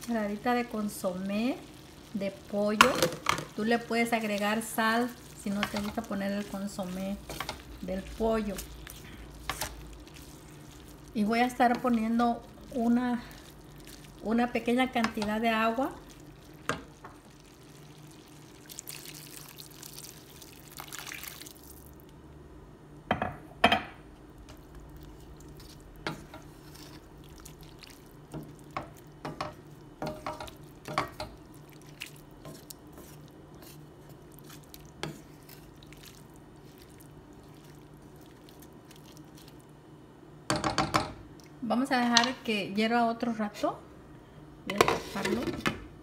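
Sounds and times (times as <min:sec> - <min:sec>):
wooden spoon scraping a pan: 0:02.2 - 0:15.8, 0:25.1 - 0:27.0, 0:28.3 - 0:36.1, 0:44.7 - 0:45.6.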